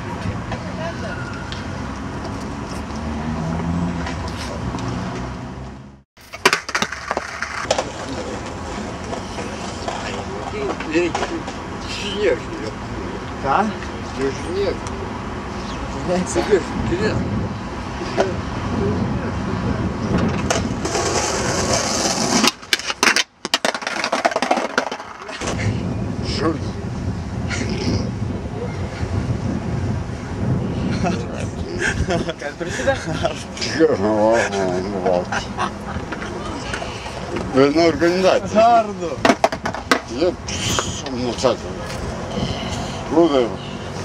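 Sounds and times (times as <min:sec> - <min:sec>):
low city rumble: 0:00.0 - 0:44.0
skateboard clacking on stone: 0:06.2 - 0:09.2, 0:20.2 - 0:25.5, 0:39.2 - 0:40.2.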